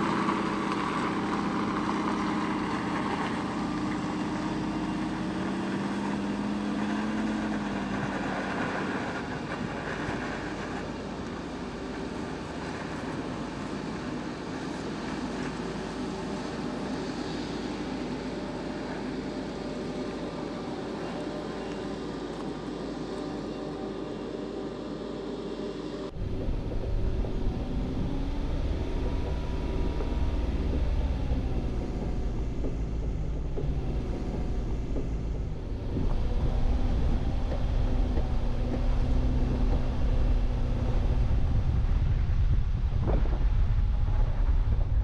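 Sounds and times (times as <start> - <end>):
off-roader engine rumble: 0.0 - 45.0
rising and falling whine: 15.0 - 45.0.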